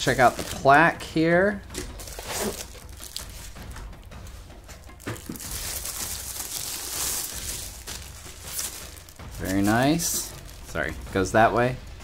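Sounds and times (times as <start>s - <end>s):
plastic wrapping crinkling: 0.0s - 0.8s, 1.8s - 3.8s, 4.8s - 11.0s.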